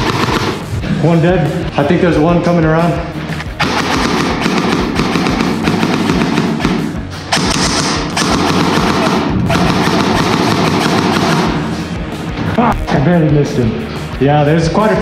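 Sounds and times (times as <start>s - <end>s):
airsoft gun full-auto bursts: 3.6s - 11.7s.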